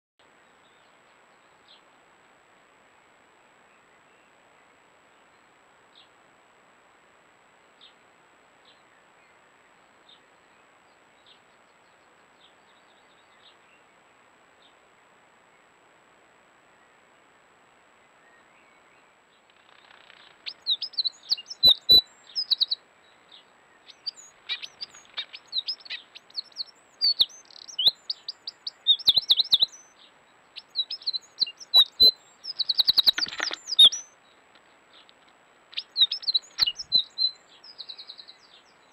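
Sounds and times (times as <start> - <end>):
wren singing trills: 20.3 - 34.2, 35.7 - 38.9
sharp clicks: 32.9 - 33.9.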